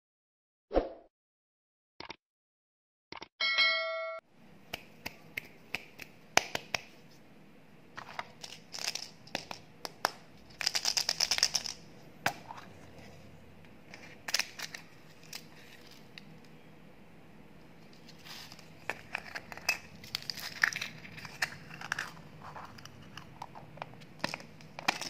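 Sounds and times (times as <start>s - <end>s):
plastic candy containers clicking: 8.2s - 11.8s, 18.9s - 25.0s.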